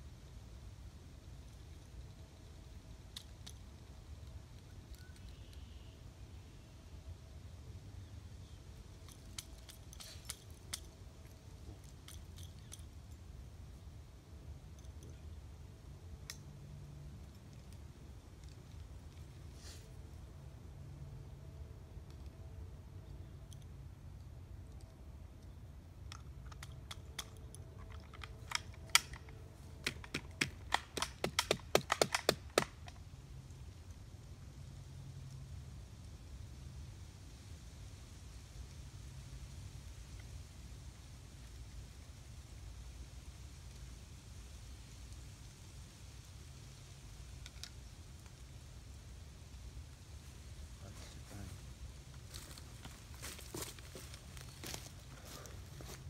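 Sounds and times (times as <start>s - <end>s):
shotgun metallic clicks and rattles: 9.0s - 12.9s, 24.7s - 33.0s.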